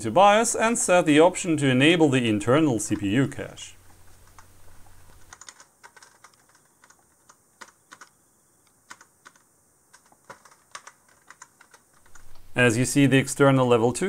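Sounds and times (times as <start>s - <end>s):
keyboard keys clicking: 4.2s - 8.2s, 8.8s - 12.4s.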